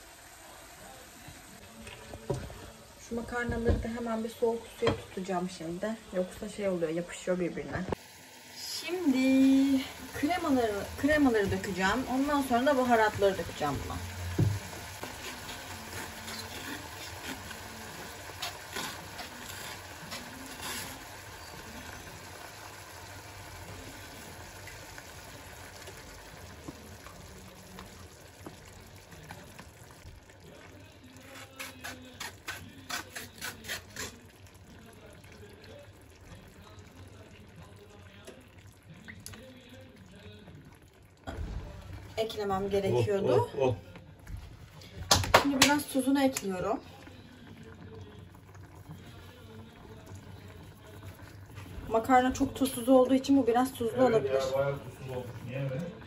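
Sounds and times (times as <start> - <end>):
low hiss of frying pan: 7.9 - 27.8.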